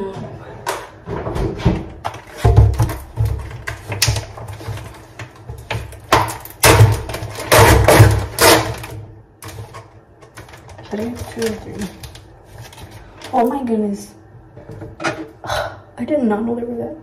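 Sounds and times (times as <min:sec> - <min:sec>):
plastic package crackling: 0:02.1 - 0:13.6.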